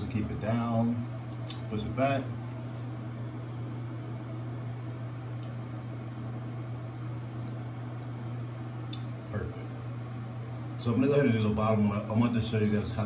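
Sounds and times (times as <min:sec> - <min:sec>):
fan humming and hissing: 0:00.0 - 0:13.0.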